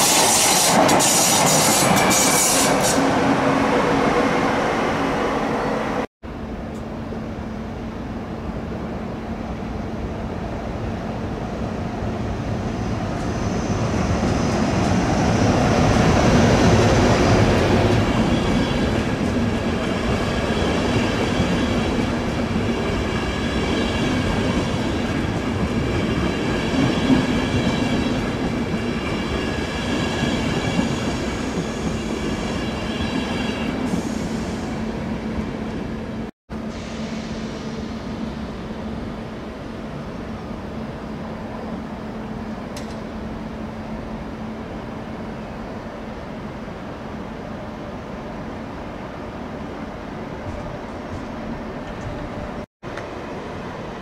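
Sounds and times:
passenger train rumble: 0.0s - 54.0s.

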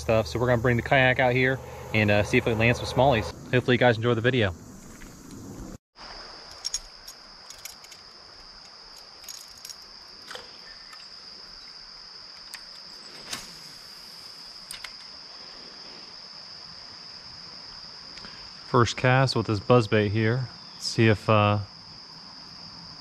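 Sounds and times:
insect chorus trilling: 0.0s - 23.0s.

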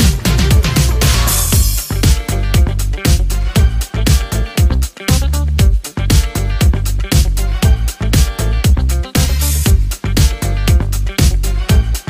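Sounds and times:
dance music with deep bass: 0.0s - 12.0s.

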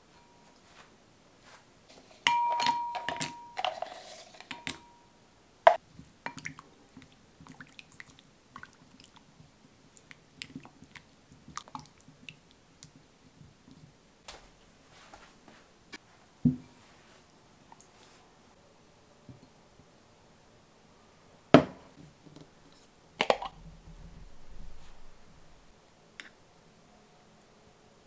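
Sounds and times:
spatula stirring with wet sounds: 5.8s - 13.9s.

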